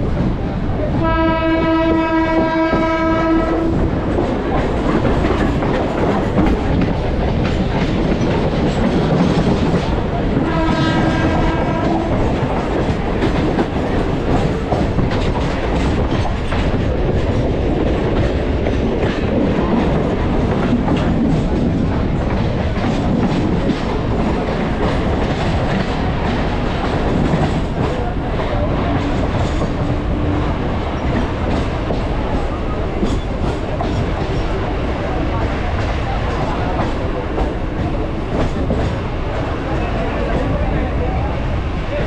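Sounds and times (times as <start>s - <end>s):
train rumble: 0.0s - 42.0s
train horn blast: 0.9s - 3.8s, 10.4s - 12.3s.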